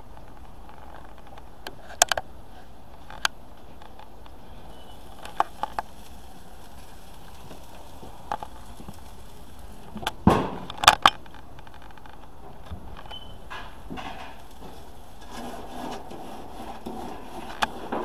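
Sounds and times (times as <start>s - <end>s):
steady hiss: 0.0s - 18.0s
sharp clicks and knocks: 9.8s - 18.0s.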